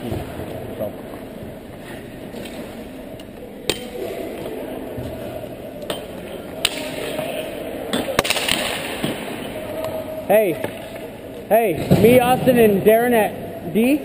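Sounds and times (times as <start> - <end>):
indoor ice rink background noise: 0.0 - 14.0
hockey pucks and sticks clacking: 2.3 - 5.2, 5.8 - 11.1.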